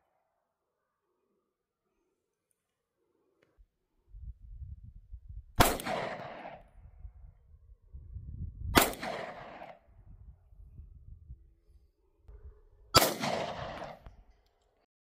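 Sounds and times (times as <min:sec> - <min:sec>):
pistol shots: 0:05.6 - 0:06.6, 0:08.8 - 0:09.8, 0:13.0 - 0:14.0.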